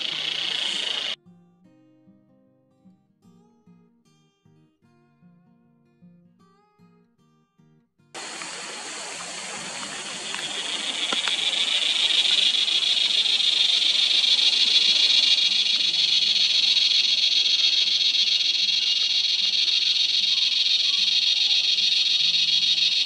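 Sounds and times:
cicada buzzing: 0.0 - 1.2, 8.2 - 23.0.

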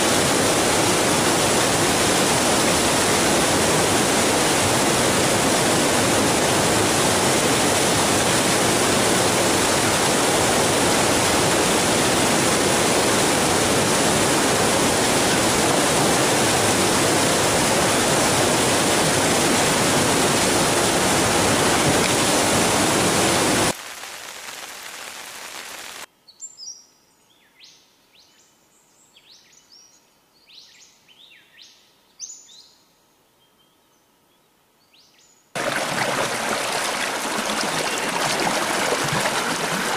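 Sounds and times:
river water rushing over boulders: 0.0 - 23.8, 35.6 - 39.9.

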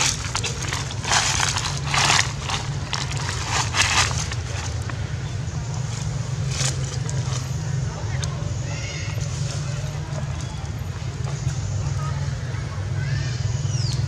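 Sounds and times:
footsteps crunching dry leaves: 0.0 - 7.6
low steady rumble: 0.0 - 14.0.

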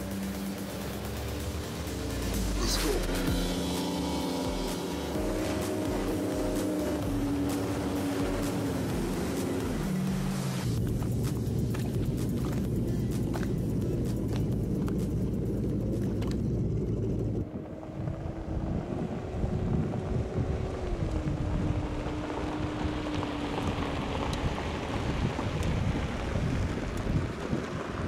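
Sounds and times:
low motor hum: 0.0 - 28.0
wind buffeting microphone: 17.2 - 28.0.

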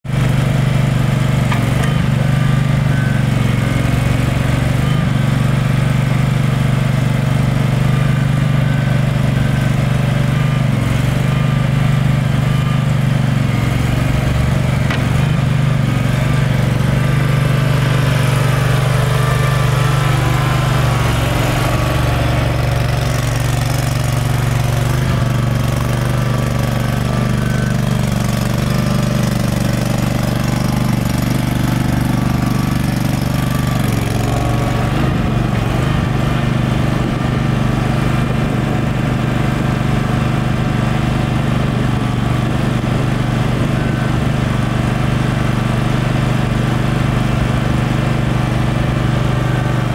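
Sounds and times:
small engine running: 0.1 - 49.9.

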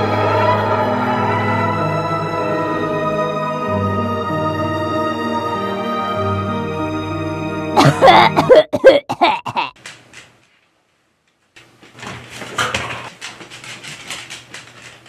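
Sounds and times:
light clattering and scuffling: 11.6 - 15.0.

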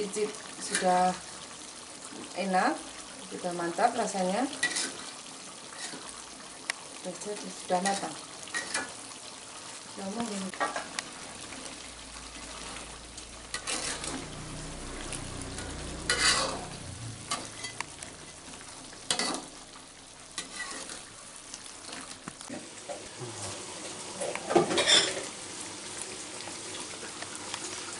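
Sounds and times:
sauce sizzling: 0.0 - 27.9
metal spatula scraping a wok: 4.6 - 5.1, 5.7 - 6.1, 7.8 - 8.9, 13.4 - 14.3, 15.5 - 18.4, 19.0 - 19.6, 20.4 - 21.1.

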